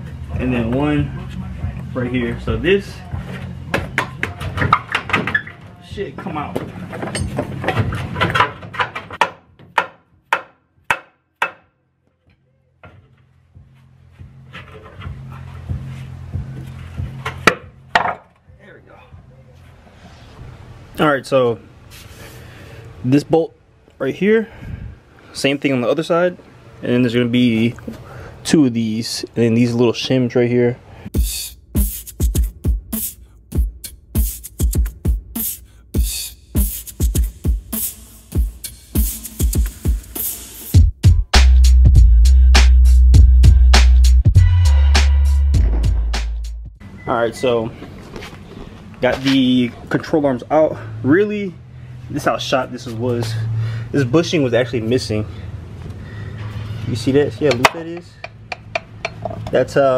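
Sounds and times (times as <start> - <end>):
hip-hop music: 0.0 - 5.0, 31.1 - 46.7.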